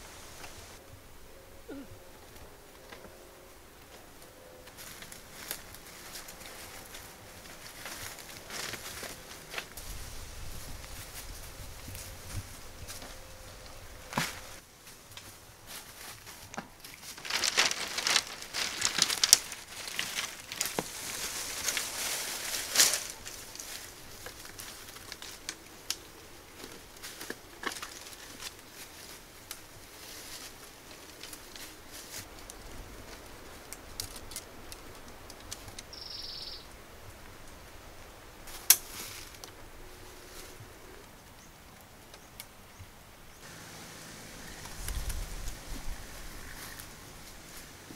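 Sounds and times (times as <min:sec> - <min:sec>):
dry bamboo and leaves crackling: 0:00.0 - 0:47.9
high chirp: 0:36.0 - 0:36.7.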